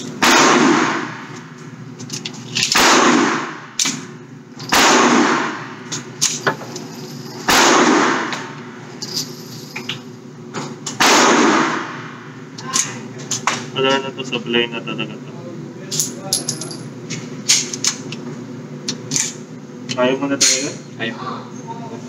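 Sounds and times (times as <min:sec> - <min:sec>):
echoing gunshots: 0:00.2 - 0:01.3, 0:02.8 - 0:03.8, 0:04.7 - 0:05.8, 0:07.5 - 0:08.6, 0:11.0 - 0:12.2.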